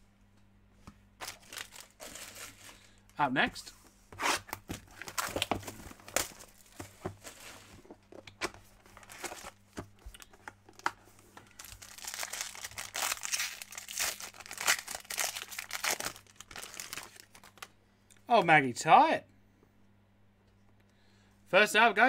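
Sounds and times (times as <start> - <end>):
foil wrapper crinkling and tearing: 1.2 - 3.0, 11.6 - 17.7.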